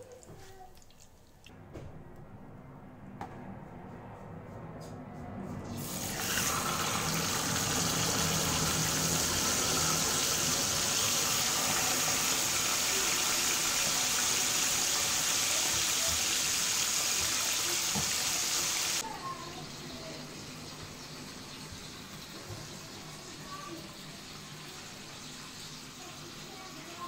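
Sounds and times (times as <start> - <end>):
fish sizzling in oil: 5.8 - 19.0.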